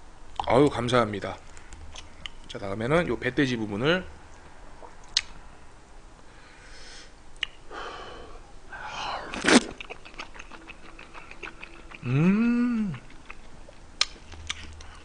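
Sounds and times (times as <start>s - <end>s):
person slurping food: 8.0s - 13.0s
wet chewing and smacking: 9.3s - 12.1s, 12.9s - 15.0s
person humming: 11.7s - 13.1s.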